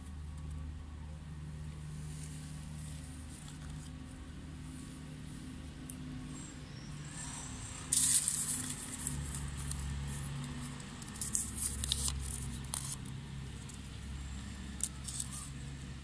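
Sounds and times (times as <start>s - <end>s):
low steady hum: 0.0s - 16.0s
paper slips rustling: 11.1s - 13.0s.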